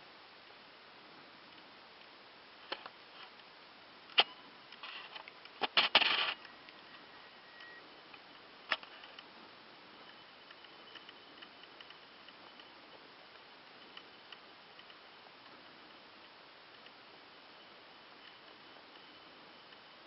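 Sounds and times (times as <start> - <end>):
rustling scrape: 4.8 - 6.4.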